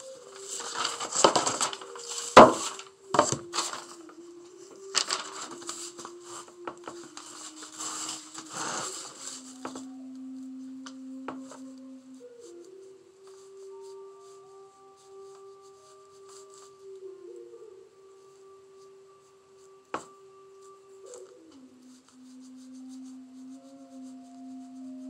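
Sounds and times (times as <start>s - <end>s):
paper shifting: 0.0s - 11.7s
soft sustained tones: 0.0s - 25.0s.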